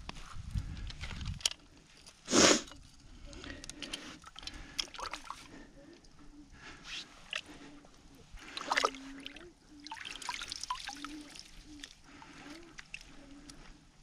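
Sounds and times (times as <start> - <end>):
hands splashing in water: 8.4 - 11.6
water trickling: 8.4 - 12.2.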